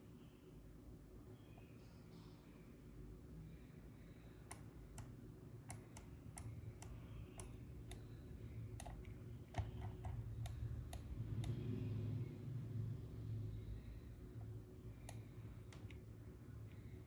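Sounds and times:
low steady hum: 0:00.0 - 0:17.0
computer mouse clicks: 0:04.4 - 0:08.1, 0:08.7 - 0:11.7, 0:15.0 - 0:16.0.

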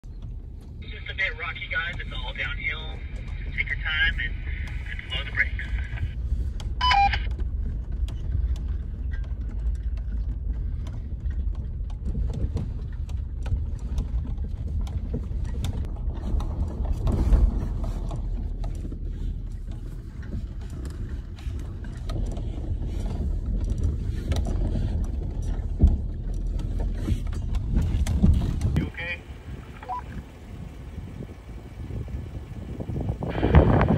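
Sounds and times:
low drivetrain and tyre rumble: 0:00.0 - 0:33.9
clicks knocks and rattles: 0:06.5 - 0:28.8.

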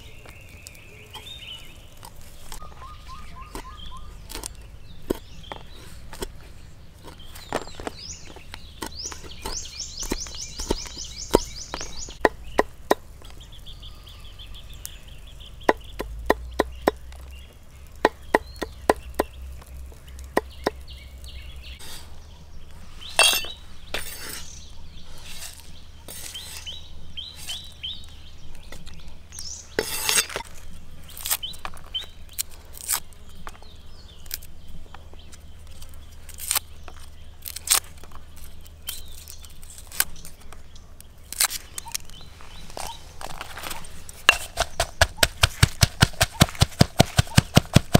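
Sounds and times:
faint birds chirping: 0:00.0 - 0:47.9
scraping into stone mortar: 0:03.4 - 0:12.2, 0:22.8 - 0:27.8, 0:29.6 - 0:33.1, 0:41.3 - 0:47.9
knife chopping on wooden board: 0:44.3 - 0:47.9.

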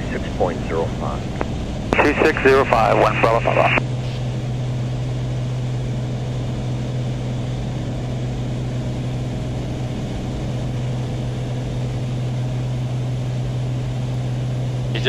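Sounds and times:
propeller plane engines droning: 0:00.0 - 0:15.0
air noise: 0:01.0 - 0:04.4.

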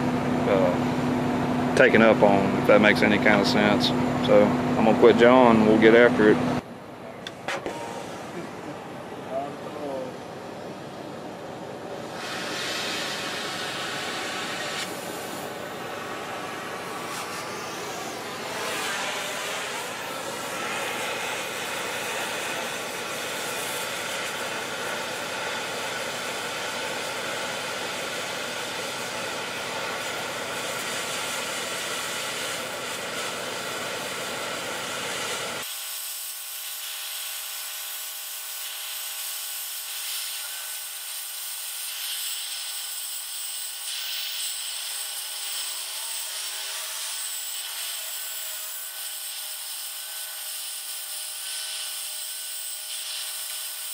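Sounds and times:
cutting torch hissing: 0:12.0 - 0:53.9.

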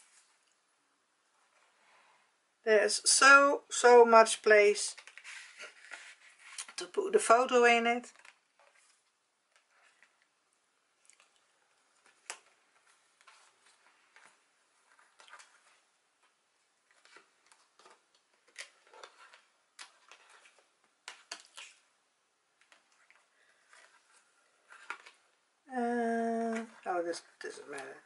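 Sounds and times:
album pages turning: 0:04.9 - 0:07.0, 0:08.0 - 0:10.4, 0:11.0 - 0:25.4, 0:26.2 - 0:28.0
soft taps and paper rustles: 0:04.9 - 0:07.0, 0:08.0 - 0:10.3, 0:11.1 - 0:21.9, 0:22.6 - 0:25.3.

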